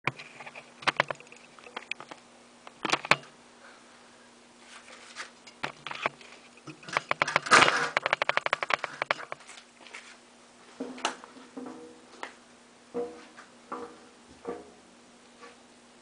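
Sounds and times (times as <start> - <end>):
plastic sheet crackling: 4.7 - 10.2.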